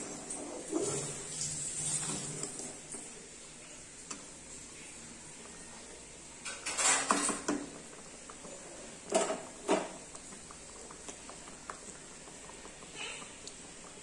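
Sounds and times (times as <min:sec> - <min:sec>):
metal spatula scraping a pan: 0:06.5 - 0:07.3.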